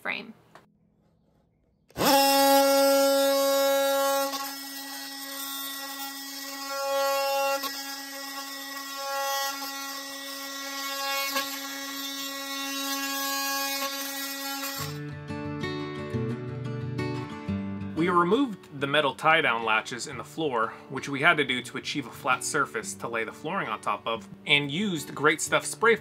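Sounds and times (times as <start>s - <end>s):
oscillating multi-tool cutting wood: 1.9s - 15.0s.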